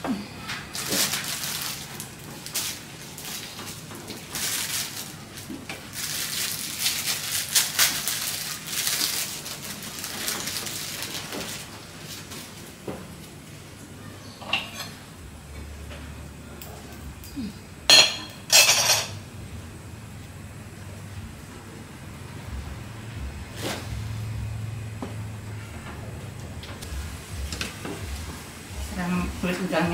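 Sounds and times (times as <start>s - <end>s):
kitchen rustling and scraping: 0.4s - 15.1s, 18.0s - 19.2s, 23.5s - 24.2s.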